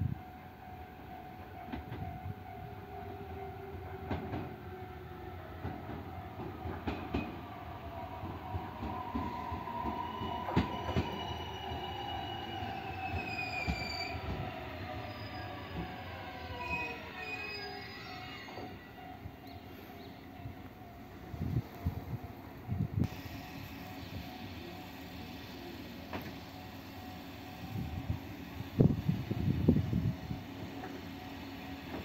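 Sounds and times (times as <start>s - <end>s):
train wheels clicking over rail joints: 5.6s - 7.4s
high brake squeals: 10.0s - 18.9s.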